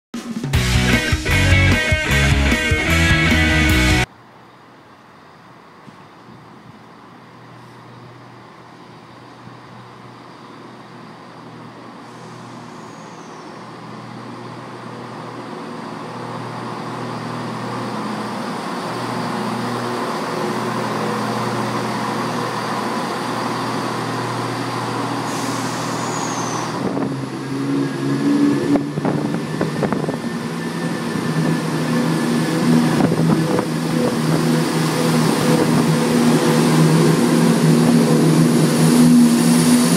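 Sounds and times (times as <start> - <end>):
diesel train engine: 0.3 - 39.9.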